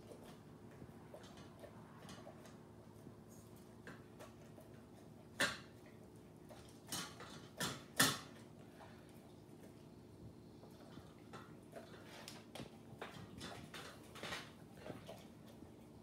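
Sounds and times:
dog eating ticks: 0.0s - 16.0s.

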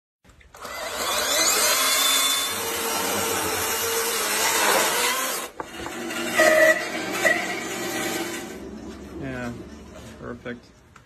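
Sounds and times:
chainsaw cutting through log: 0.5s - 8.6s.

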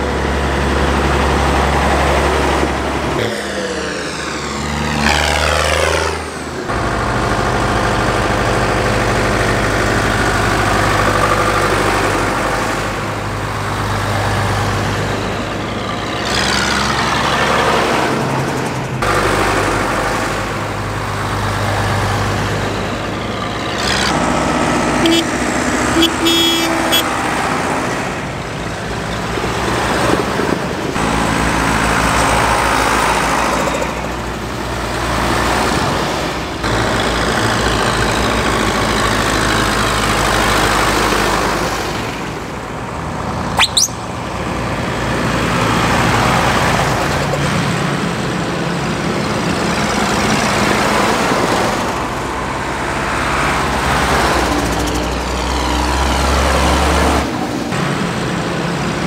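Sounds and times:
tractor diesel engines passing: 0.0s - 59.0s
high whistle falling in pitch: 43.6s - 44.1s.

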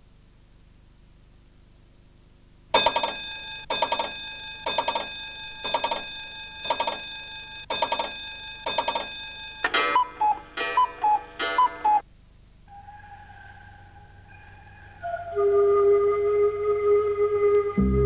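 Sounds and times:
short high and low notes: 15.4s - 18.0s.

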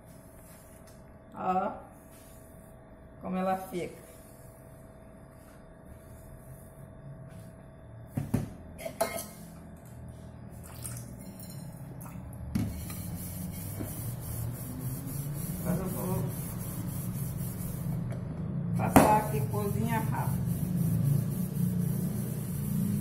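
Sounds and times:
sponge scrubbing metal mug: 12.7s - 18.0s.

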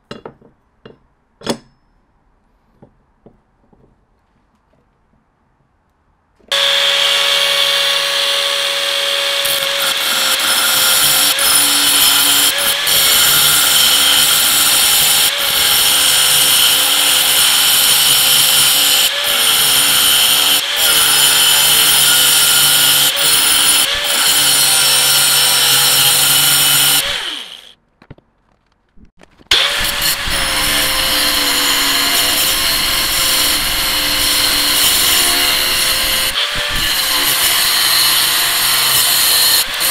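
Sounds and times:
angle grinder cutting metal: 6.5s - 27.7s, 29.5s - 39.9s.

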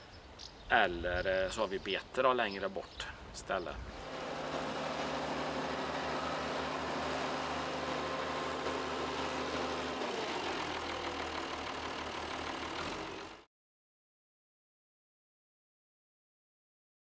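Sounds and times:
tractor diesel engine running: 3.9s - 13.5s.

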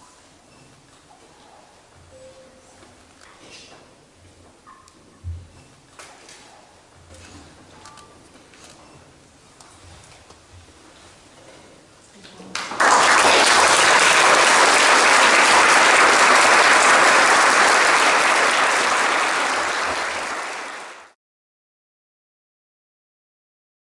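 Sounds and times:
audience applauding: 12.5s - 21.2s.

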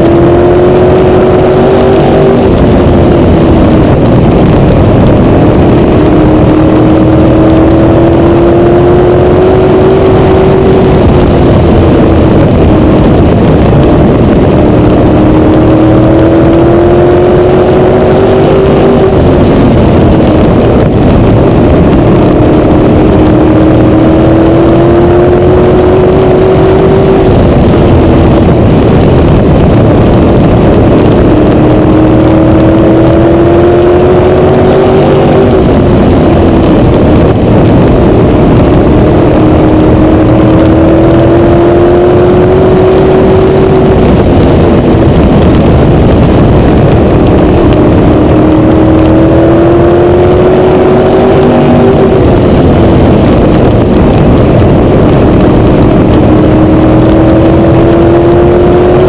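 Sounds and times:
race car engine at speed: 0.0s - 59.0s.

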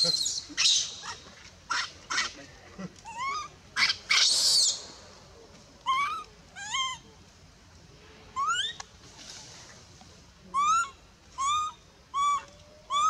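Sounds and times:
baby monkey crying: 3.0s - 4.7s, 5.9s - 7.0s, 10.5s - 13.0s.

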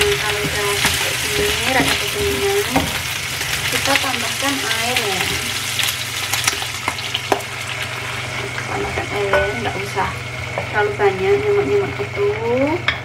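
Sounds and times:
food sizzling in oil: 0.0s - 12.9s.

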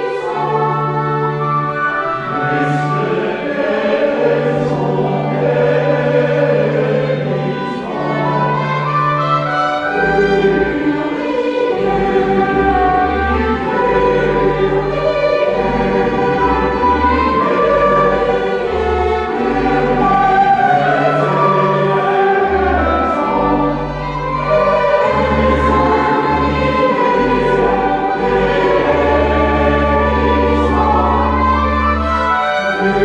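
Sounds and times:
church choir singing: 0.0s - 33.0s
organ playing: 0.0s - 33.0s.

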